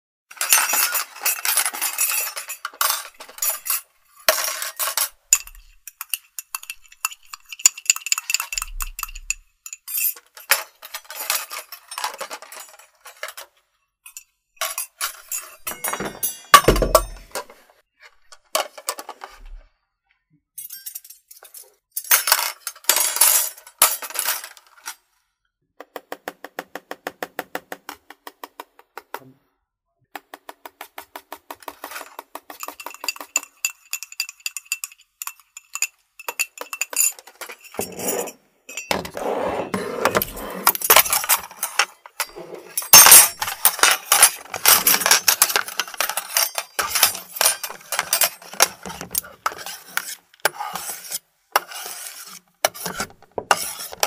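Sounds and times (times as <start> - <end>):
dishes and cutlery clattering: 0.3 - 17.8, 31.6 - 54.0.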